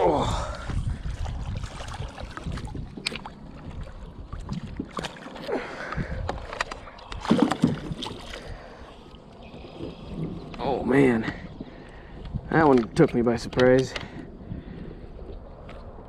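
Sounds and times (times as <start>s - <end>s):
water splashing by kayak: 0.0s - 12.5s.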